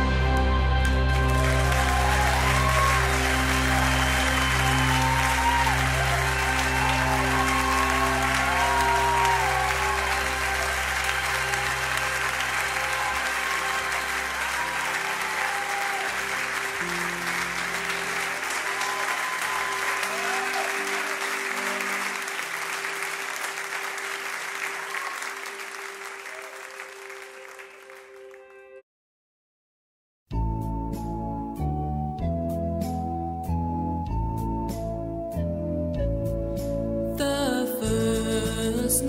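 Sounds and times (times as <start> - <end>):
live song: 0.0 - 27.8, 37.1 - 39.0
audience applause: 0.1 - 28.6.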